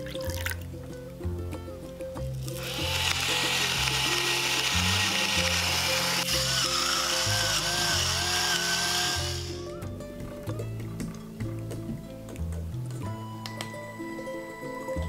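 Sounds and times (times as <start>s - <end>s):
background music: 0.0s - 15.0s
pepper mill grinding: 2.3s - 9.7s.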